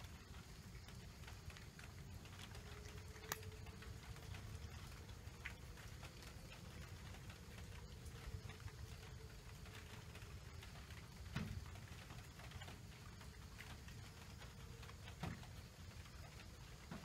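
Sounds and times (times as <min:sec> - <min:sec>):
low background rumble: 0:00.0 - 0:17.0
cat chewing food: 0:00.1 - 0:16.7.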